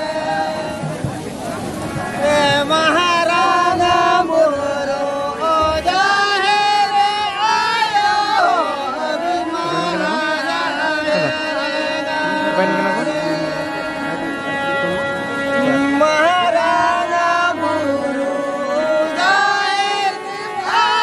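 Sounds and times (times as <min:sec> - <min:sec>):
harmonium chords: 0:00.0 - 0:21.0
men singing folk song: 0:00.0 - 0:21.0.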